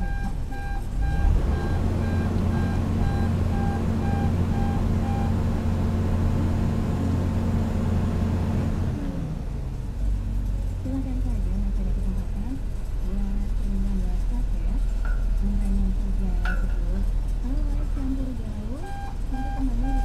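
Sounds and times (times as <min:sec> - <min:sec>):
machine warning alarm beeps: 0:00.0 - 0:05.4, 0:18.8 - 0:20.0
excavator diesel engine drone: 0:00.0 - 0:20.0.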